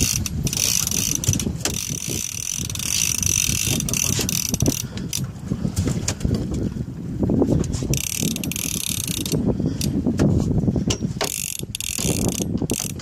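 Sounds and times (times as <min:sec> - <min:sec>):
fishing reel cranking: 0:00.0 - 0:05.3, 0:07.9 - 0:10.0, 0:11.2 - 0:13.0
wind buffeting microphone: 0:00.0 - 0:13.0.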